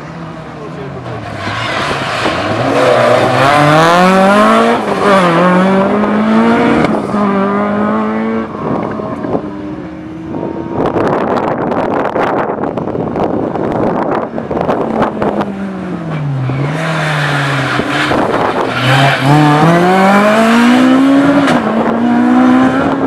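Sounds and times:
rally car engine revving: 0.0s - 23.0s
wind buffeting microphone: 8.2s - 15.6s.

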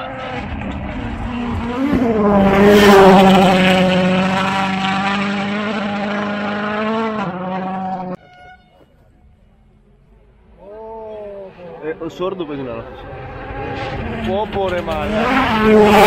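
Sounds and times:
rally car engine at high revs: 0.0s - 8.2s, 12.4s - 16.0s.

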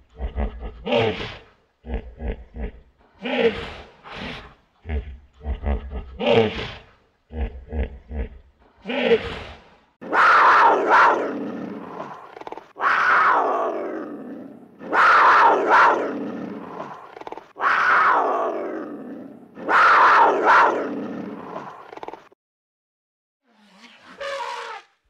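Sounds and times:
loud animal call: 10.0s - 14.2s, 14.8s - 19.0s, 19.6s - 22.3s, 23.6s - 25.0s.

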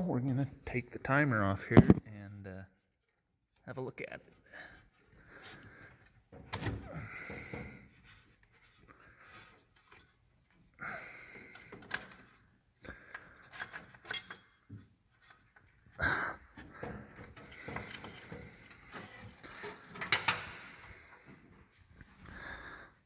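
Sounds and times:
metallic clicks and scraping: 13.1s - 15.8s.

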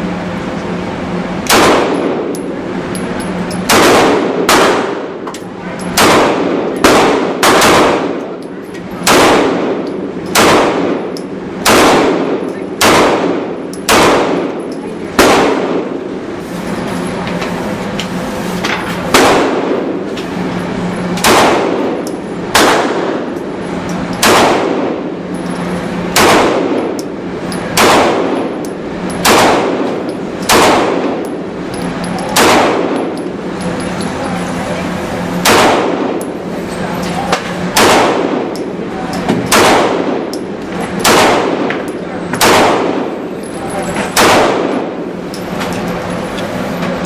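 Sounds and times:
steady low hum: 0.0s - 47.0s
handgun shots echoing indoors: 1.4s - 2.4s, 3.5s - 14.6s, 15.2s - 16.0s, 21.2s - 23.4s, 24.1s - 25.1s, 26.1s - 27.1s, 27.7s - 31.3s, 32.2s - 33.2s, 35.4s - 36.3s, 37.3s - 40.2s, 41.0s - 43.2s, 44.1s - 44.8s.

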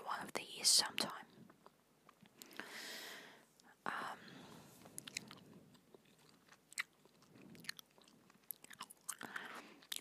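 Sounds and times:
gum chewing: 1.4s - 2.7s, 4.8s - 10.0s.

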